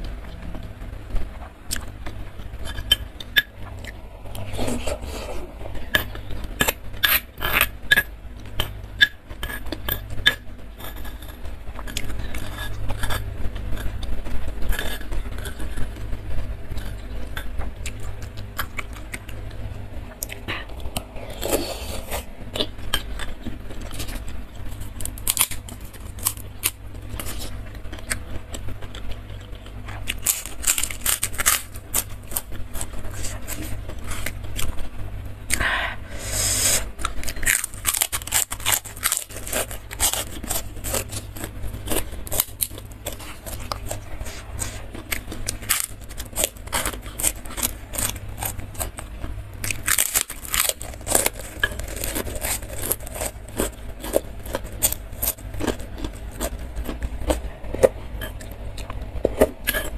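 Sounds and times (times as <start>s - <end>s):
cracker crunching: 0.0s - 35.8s, 36.6s - 59.9s
low hum: 0.0s - 59.9s
chewing: 16.7s - 34.9s, 36.9s - 59.9s.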